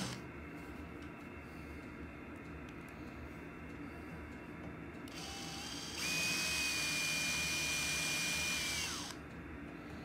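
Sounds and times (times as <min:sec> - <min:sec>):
cordless drill whining: 0:00.0 - 0:00.2, 0:05.1 - 0:09.2.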